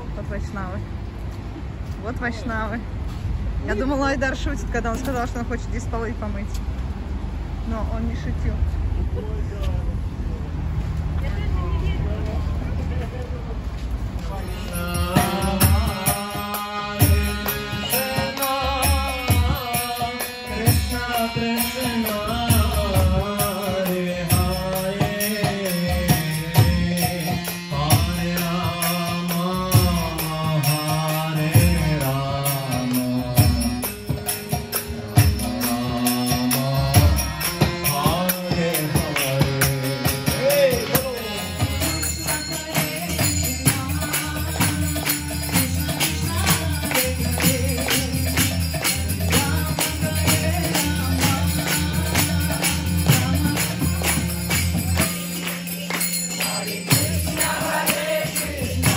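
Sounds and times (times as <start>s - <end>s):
harmonium chords: 11.3s - 58.9s
jingling hand cymbals: 14.3s - 58.9s
barrel drum beat: 33.2s - 55.9s, 56.5s - 58.9s.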